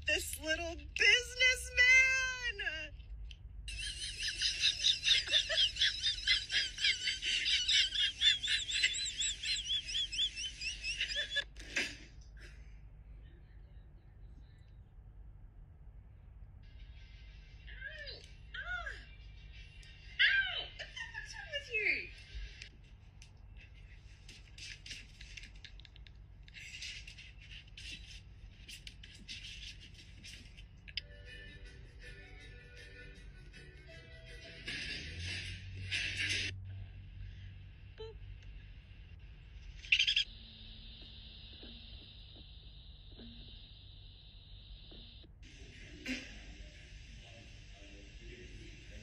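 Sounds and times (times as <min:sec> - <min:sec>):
kitten claws scratching plastic: 0:22.7 - 0:30.9
high-pitched warbling chirps: 0:39.9 - 0:40.4.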